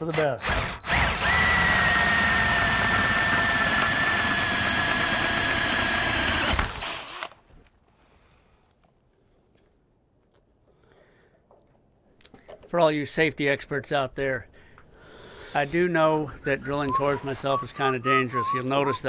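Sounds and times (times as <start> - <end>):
cordless drill boring through metal: 0.0 - 7.4.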